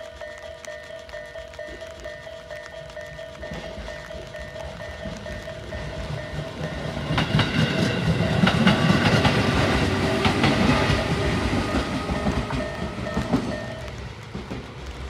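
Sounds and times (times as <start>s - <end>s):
level crossing bell ringing: 0.0s - 8.6s, 11.2s - 13.9s
train wheels clattering: 0.0s - 15.0s.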